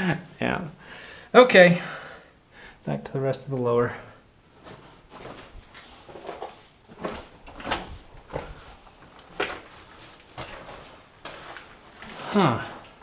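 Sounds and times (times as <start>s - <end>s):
footsteps on rocky ground: 4.5s - 13.0s.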